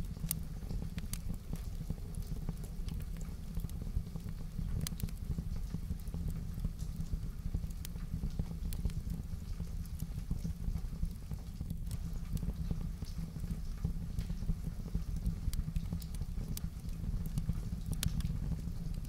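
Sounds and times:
heavy rain pattering: 0.0s - 19.0s
wood fire crackling: 0.0s - 19.0s.

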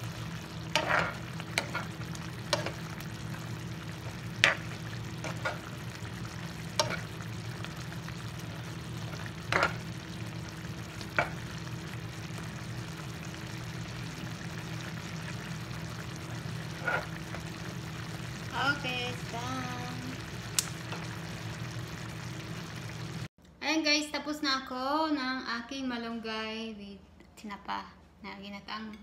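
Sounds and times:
spatula scraping frying pan: 0.6s - 2.9s, 4.4s - 5.8s, 6.7s - 7.2s, 9.2s - 9.8s, 16.7s - 17.2s.

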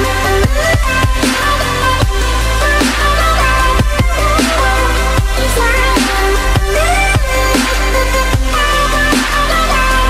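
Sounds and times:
electronic music with heavy bass: 0.0s - 10.0s.

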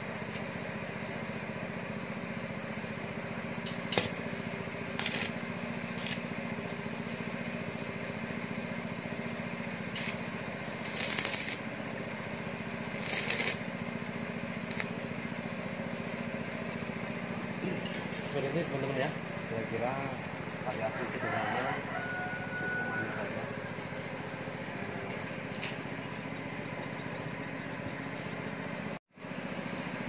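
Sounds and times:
steady low hum: 0.0s - 21.2s
welding arc bursts: 4.9s - 6.3s, 9.9s - 11.7s, 12.9s - 13.7s, 14.6s - 14.9s.

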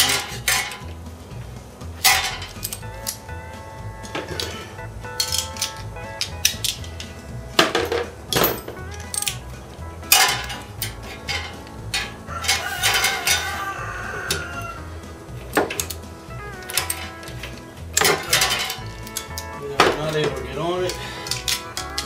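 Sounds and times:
socket wrench clinking on metal: 2.0s - 3.2s, 4.0s - 9.5s, 10.1s - 13.6s, 15.5s - 22.0s.

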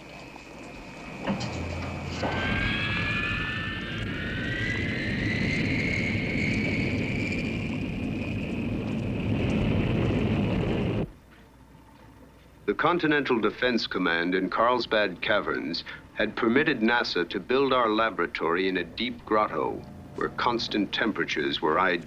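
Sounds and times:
rising whines: 0.1s - 11.1s, 19.1s - 22.0s
jet-like rushing roar: 0.6s - 11.1s.

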